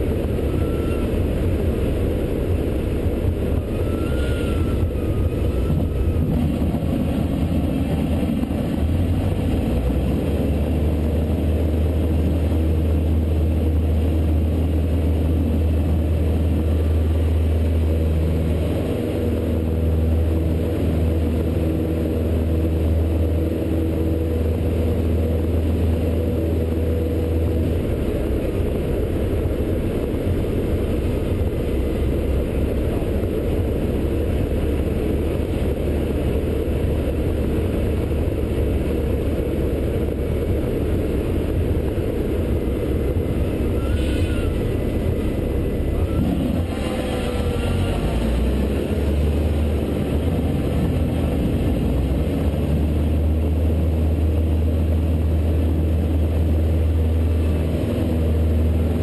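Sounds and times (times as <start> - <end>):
propeller plane engine drone: 0.0 - 59.0.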